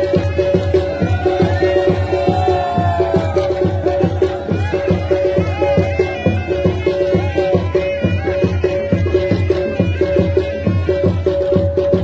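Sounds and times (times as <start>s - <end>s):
quick steady drum beat: 0.0s - 12.0s.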